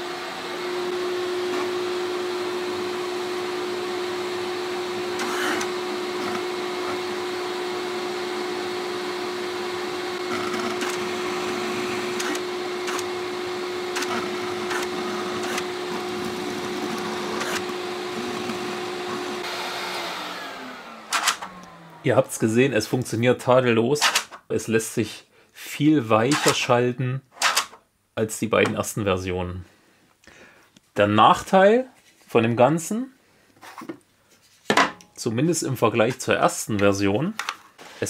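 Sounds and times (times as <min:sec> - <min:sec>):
vacuum cleaner running: 0:00.0 - 0:22.6
sharp lever clicks: 0:21.1 - 0:21.5, 0:24.0 - 0:24.4, 0:27.4 - 0:27.8.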